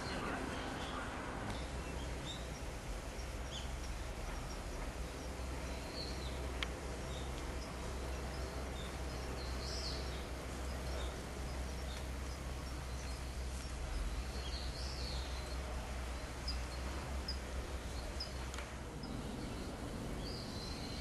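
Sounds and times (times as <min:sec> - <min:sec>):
small birds chirping: 0:00.0 - 0:21.0
steady low hum: 0:00.0 - 0:21.0.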